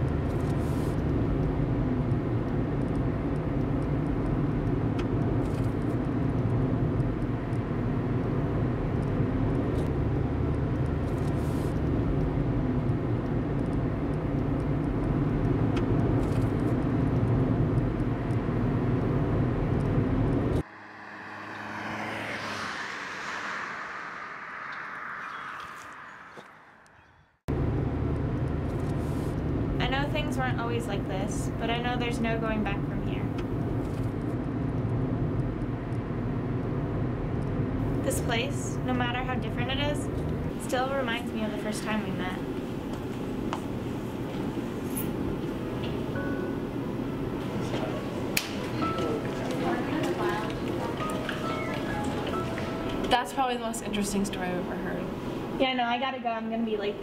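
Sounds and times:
road vehicle low rumble: 0.0 - 55.7
quiet whoosh: 20.6 - 27.3.

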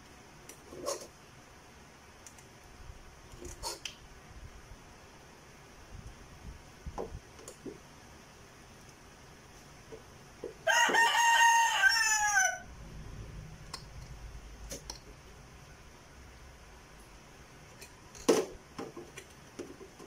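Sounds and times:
rooster crowing: 10.6 - 12.8.

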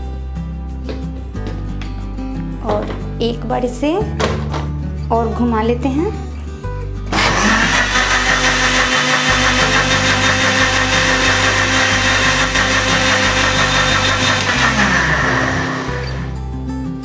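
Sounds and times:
mixer grinder motor running: 7.1 - 16.4.

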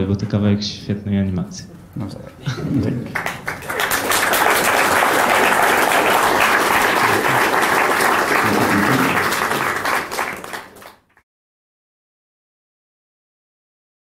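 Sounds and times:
audience applauding: 2.8 - 11.2.

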